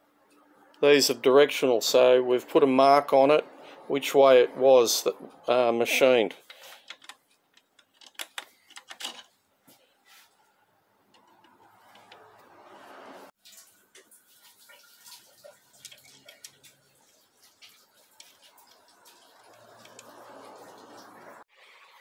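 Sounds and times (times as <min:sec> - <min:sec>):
metal parts clicking and tapping: 0:06.4 - 0:09.4.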